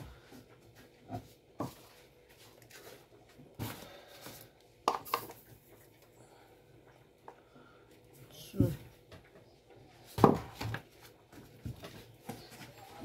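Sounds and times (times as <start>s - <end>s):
kitchen items knocking and clicking: 4.9s - 5.4s.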